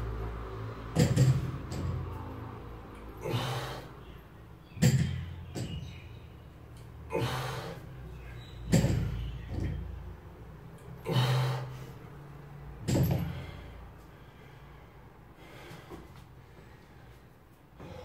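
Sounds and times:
hard breathing: 0:03.2 - 0:04.1, 0:13.2 - 0:18.0.

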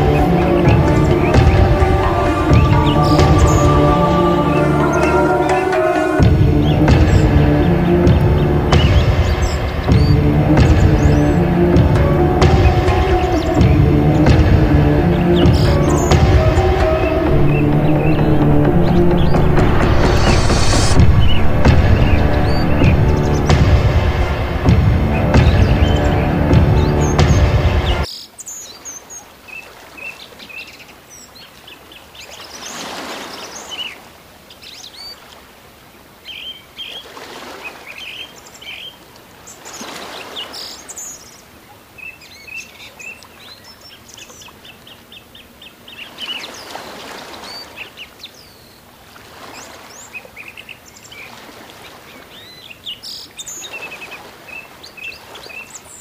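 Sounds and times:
music: 0:00.0 - 0:28.1
small birds chirping: 0:00.0 - 0:35.4, 0:37.7 - 0:56.0.

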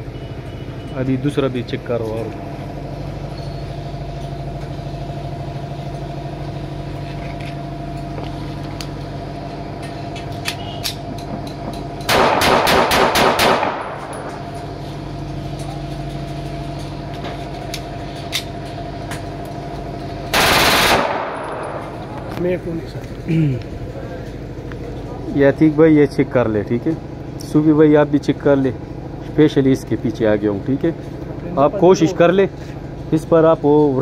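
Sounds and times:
steady mechanical hum: 0:00.0 - 0:34.0
rapid burst of gunfire: 0:12.1 - 0:14.0, 0:20.4 - 0:21.7
pistol shots: 0:12.1 - 0:14.3, 0:20.4 - 0:22.0.

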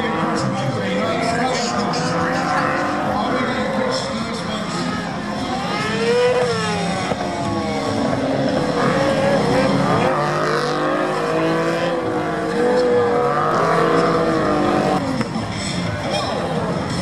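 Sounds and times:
motorcycle engine revving: 0:00.0 - 0:17.0
sports car engine revving: 0:00.0 - 0:17.0.

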